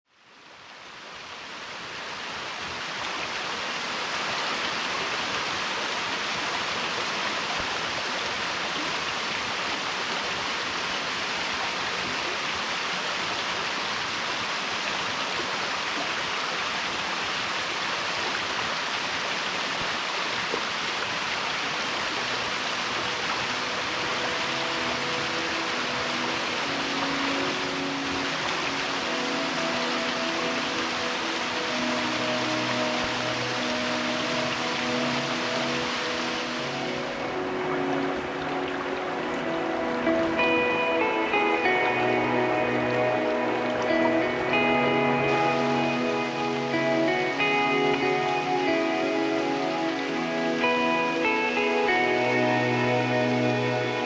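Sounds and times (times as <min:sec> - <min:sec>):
river water rushing: 0:00.1 - 0:54.0
faint musical notes: 0:21.9 - 0:54.0.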